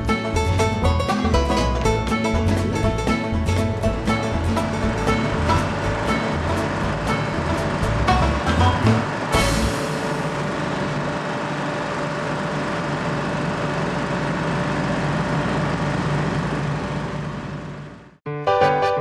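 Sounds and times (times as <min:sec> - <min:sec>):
music: 0:00.0 - 0:10.5, 0:18.2 - 0:19.0
locomotive engine idling: 0:00.0 - 0:18.2.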